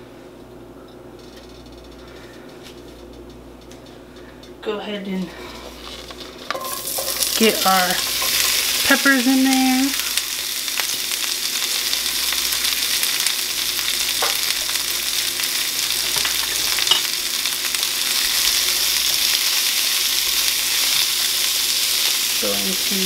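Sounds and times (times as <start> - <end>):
vegetables sizzling in hot oil: 5.6 - 23.0.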